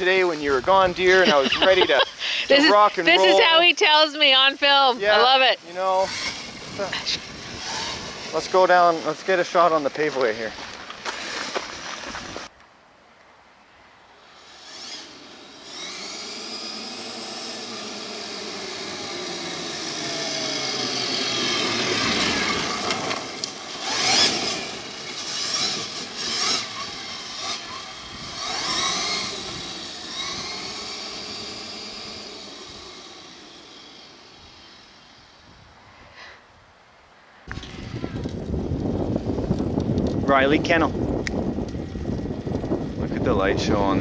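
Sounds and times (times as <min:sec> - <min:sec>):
electric motor whining: 0:00.0 - 0:12.5, 0:14.2 - 0:35.7, 0:37.5 - 0:44.0
tyres crunching gravel: 0:04.7 - 0:12.5, 0:15.6 - 0:35.2.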